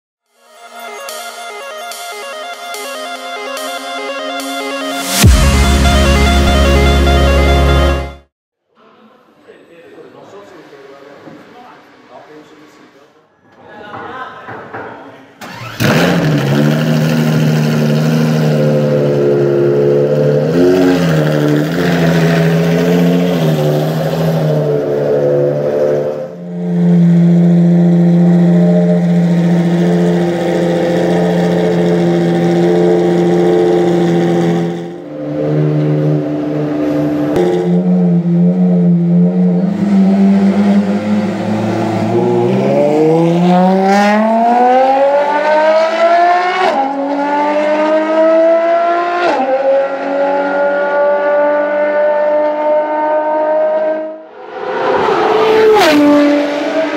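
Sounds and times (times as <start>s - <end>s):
sports car engine revving: 15.4s - 54.2s.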